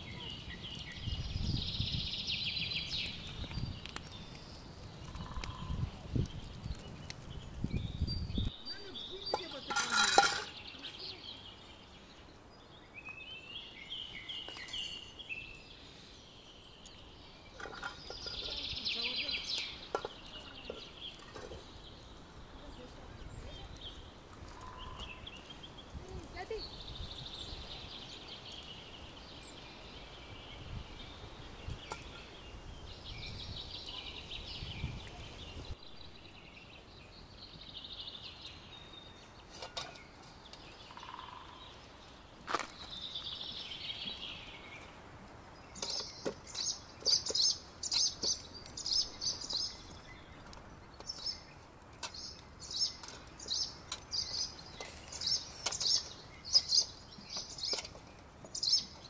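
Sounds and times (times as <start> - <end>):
small birds chirping and singing: 0.0 - 59.0
fork tapping metal: 9.3 - 10.6.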